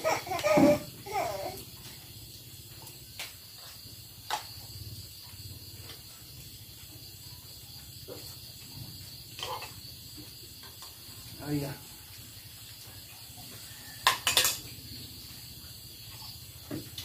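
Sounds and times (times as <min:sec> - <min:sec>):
crickets chirring: 0:00.0 - 0:17.0
spoons clinking against bowls: 0:14.0 - 0:14.6.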